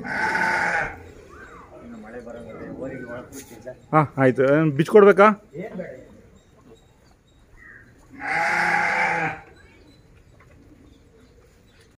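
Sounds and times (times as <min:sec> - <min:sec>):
farm animal bleating: 0:00.0 - 0:01.6, 0:08.0 - 0:09.6.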